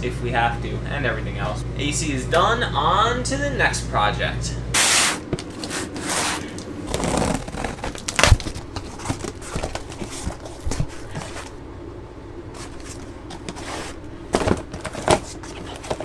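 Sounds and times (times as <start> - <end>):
cardboard packaging rustling: 5.5 - 11.6, 12.5 - 16.0
knocks of box being handled: 14.3 - 16.0.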